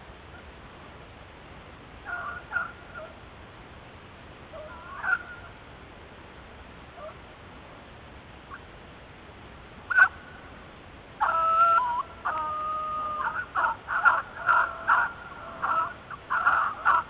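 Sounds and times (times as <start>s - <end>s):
hounds baying and yelping: 4.6s - 5.4s, 11.2s - 17.0s.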